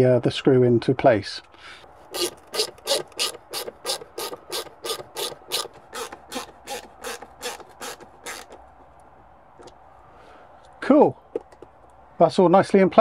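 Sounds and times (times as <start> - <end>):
hand screwdriver clicking: 2.1 - 9.8.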